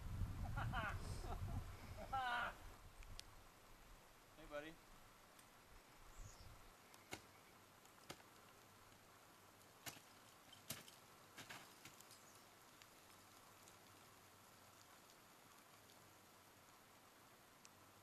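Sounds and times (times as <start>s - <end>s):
ice axes striking ice: 9.7s - 12.3s.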